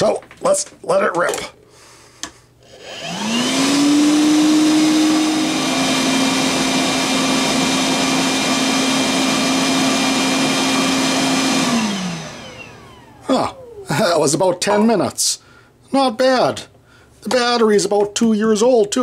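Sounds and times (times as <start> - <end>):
vacuum motor whine: 2.6 - 13.8.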